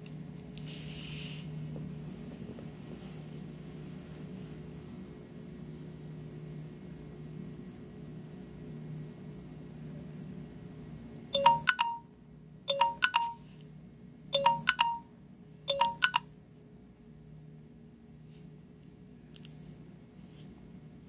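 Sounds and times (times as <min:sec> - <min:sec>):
smartwatch alarm chimes: 0:11.4 - 0:12.1, 0:12.7 - 0:13.4, 0:14.4 - 0:15.1, 0:15.7 - 0:16.2.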